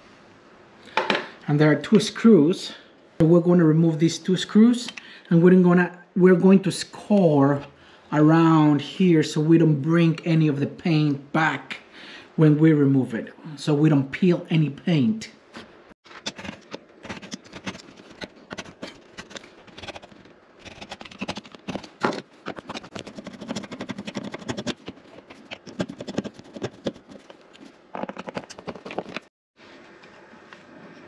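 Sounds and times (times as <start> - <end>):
utility knife scratching plate: 16.2 - 29.3.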